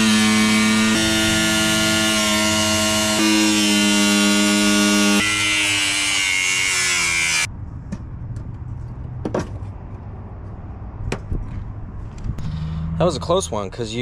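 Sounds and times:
angle grinder cutting metal: 0:00.0 - 0:07.5
tool knocks and clatter: 0:09.2 - 0:09.8.

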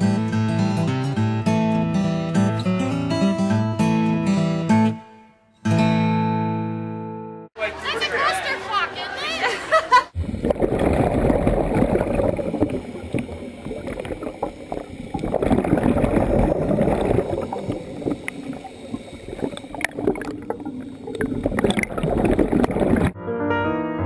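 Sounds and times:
underwater bubbling and gurgling: 0:10.2 - 0:23.2.

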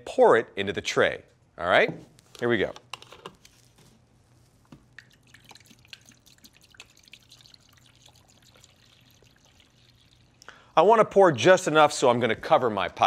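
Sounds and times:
liquid pouring into tray: 0:05.0 - 0:10.4
drips and splashes: 0:05.0 - 0:10.6.

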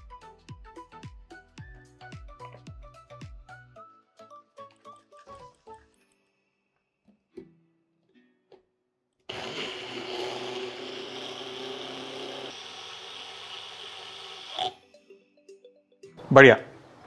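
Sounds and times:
mixer grinder running: 0:09.3 - 0:14.8.

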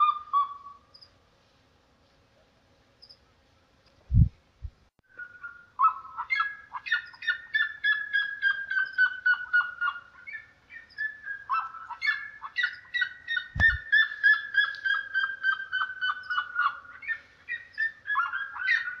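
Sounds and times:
bird calling rapid repeated notes: 0:05.1 - 0:19.0.

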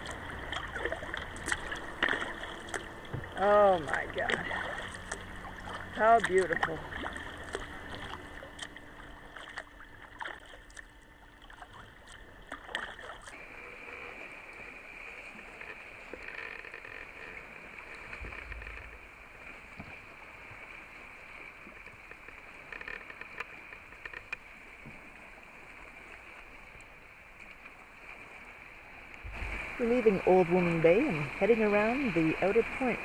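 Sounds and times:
small clicks and drips: 0:00.0 - 0:13.4, 0:15.5 - 0:19.1, 0:21.3 - 0:25.0
water lapping against kayak: 0:00.0 - 0:33.0.

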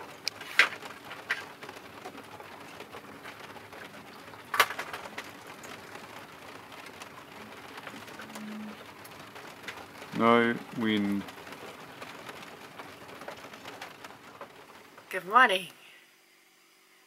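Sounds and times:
doves cooing: 0:01.2 - 0:12.8.

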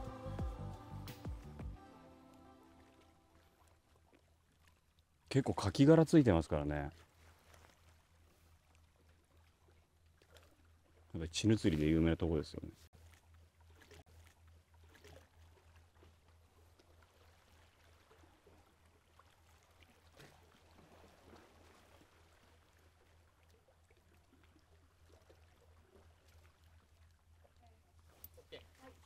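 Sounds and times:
sea water lapping on rocks: 0:12.9 - 0:29.0.

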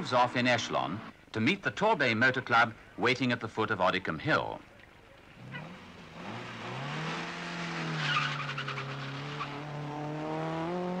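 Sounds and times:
car engine revving: 0:05.4 - 0:11.0
tyre squeal: 0:08.0 - 0:09.6.

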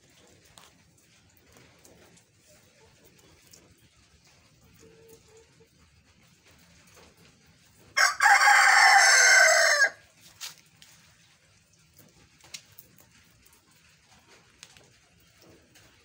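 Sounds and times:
rooster crowing: 0:08.0 - 0:10.0.

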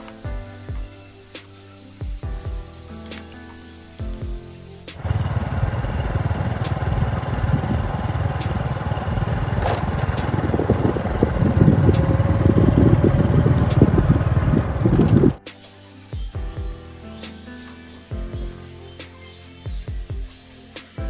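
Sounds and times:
wind buffeting microphone: 0:05.0 - 0:15.4.

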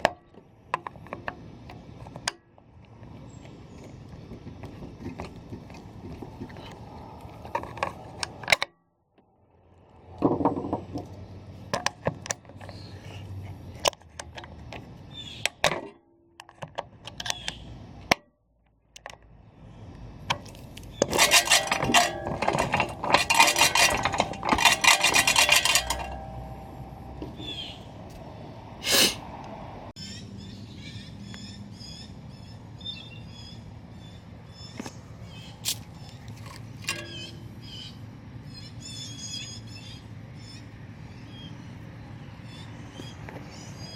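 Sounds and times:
metal mower parts clinking: 0:20.3 - 0:28.2, 0:35.7 - 0:37.4.

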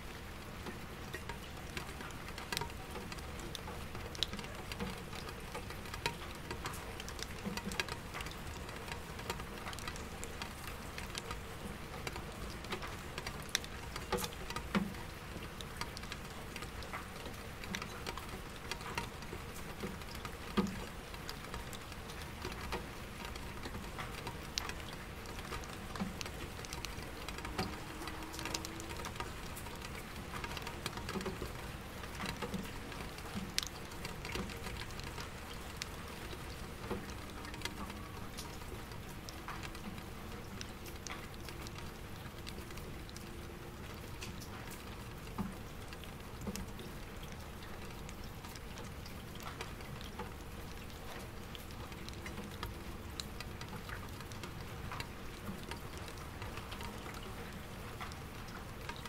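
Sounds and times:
rain pattering on window glass: 0:00.0 - 0:59.0
distant traffic hum: 0:25.0 - 0:33.2.

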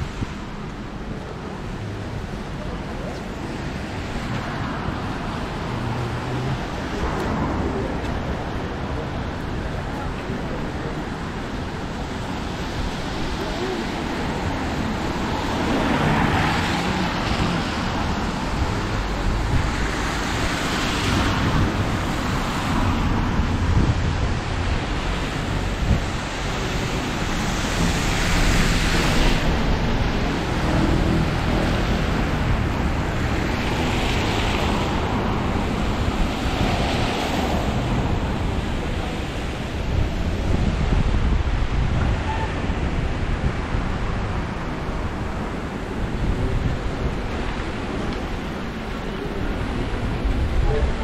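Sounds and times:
rain: 0:00.0 - 0:51.0
vehicles passing on wet road: 0:00.0 - 0:51.0
wind rumble on microphone: 0:00.0 - 0:51.0.

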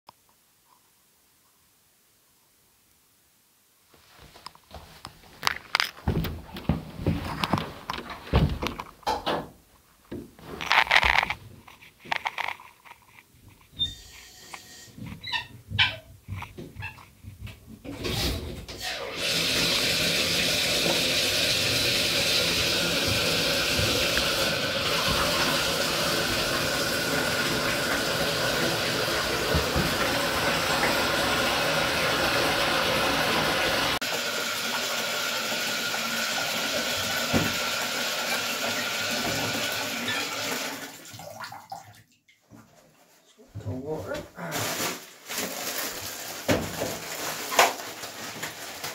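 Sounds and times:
tap water running into bathtub: 0:12.0 - 0:42.9, 0:44.6 - 0:48.9.

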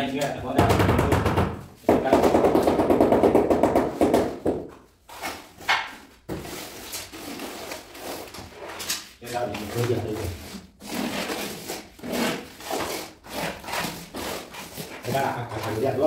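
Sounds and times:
trowel scraping tile adhesive: 0:06.4 - 0:16.0.

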